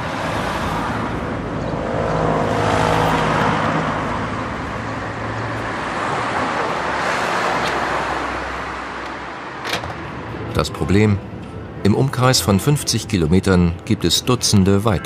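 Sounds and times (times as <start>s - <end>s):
car passing by: 0.0s - 9.0s.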